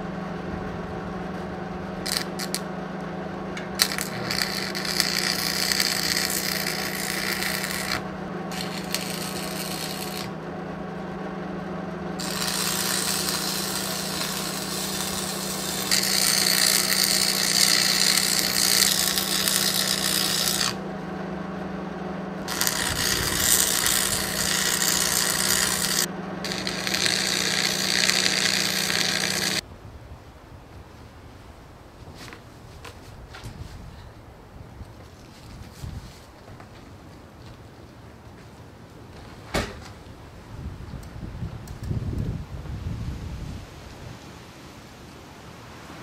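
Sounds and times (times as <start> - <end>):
welder low hum: 0.0 - 32.0
welding arc crackling and sizzling: 2.0 - 2.7, 3.6 - 10.4, 12.2 - 20.8, 22.4 - 29.6.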